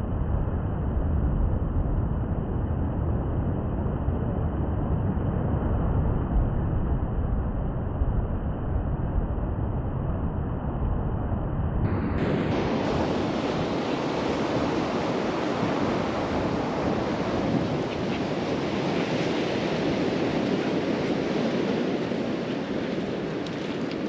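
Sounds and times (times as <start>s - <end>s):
wind on microphone: 0.0s - 24.0s
sea surf: 11.9s - 24.0s.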